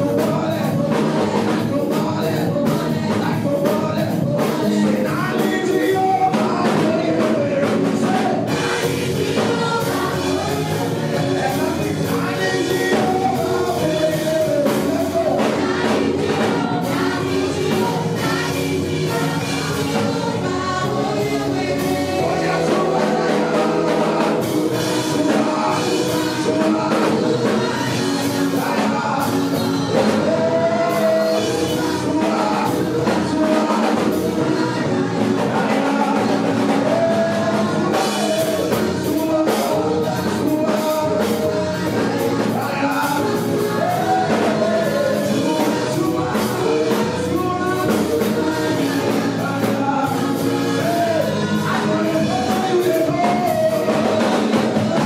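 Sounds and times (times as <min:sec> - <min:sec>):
gospel song with band: 0:00.0 - 0:55.0.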